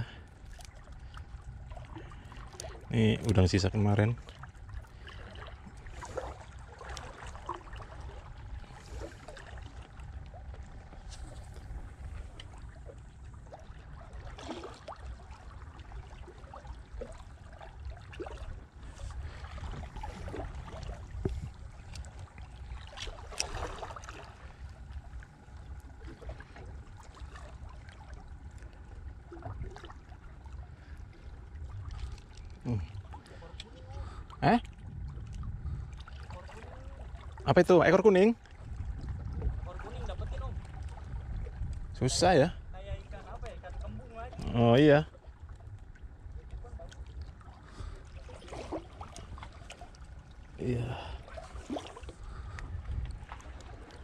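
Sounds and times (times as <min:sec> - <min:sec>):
water sloshing against boat: 0:00.0 - 0:54.0
low rumble: 0:04.2 - 0:37.4, 0:38.4 - 0:48.0.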